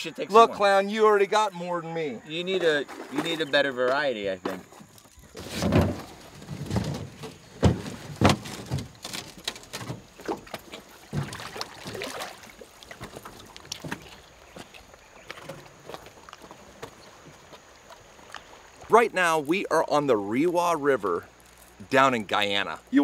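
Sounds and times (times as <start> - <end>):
footsteps on rock: 12.9 - 18.9.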